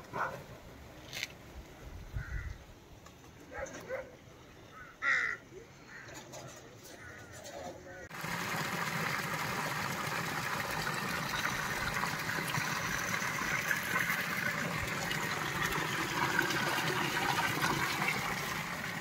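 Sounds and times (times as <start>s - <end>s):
water splashing into pool: 8.1s - 19.0s.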